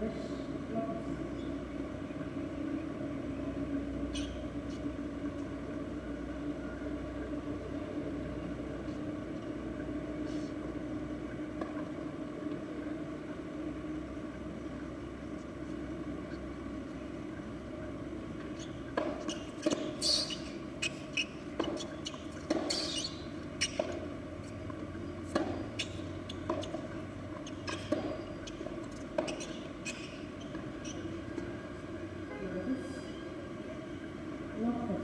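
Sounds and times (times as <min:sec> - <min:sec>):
steady background hum: 0:00.0 - 0:35.0
tennis ball struck by rackets: 0:18.9 - 0:20.5, 0:21.6 - 0:24.1, 0:25.2 - 0:30.8.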